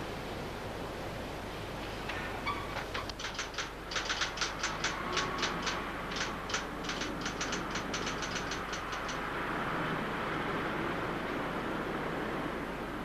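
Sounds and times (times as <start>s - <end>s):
background hiss: 0.0s - 13.0s
typewriter keys clacking: 2.8s - 9.2s.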